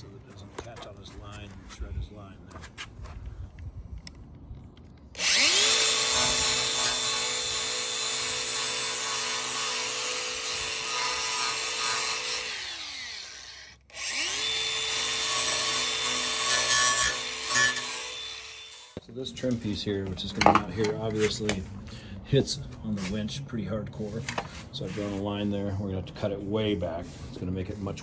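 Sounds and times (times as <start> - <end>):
cutoff saw whining: 5.1 - 19.0.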